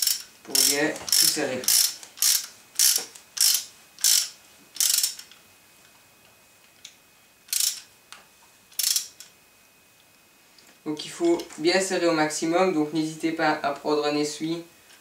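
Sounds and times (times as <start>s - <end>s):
ratchet wrench clicking: 0.0s - 5.4s, 7.5s - 7.9s, 8.7s - 9.3s.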